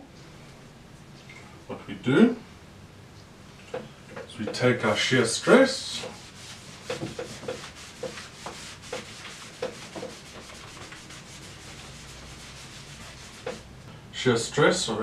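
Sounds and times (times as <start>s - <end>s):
cloth rubbing on blackboard: 5.8s - 13.7s.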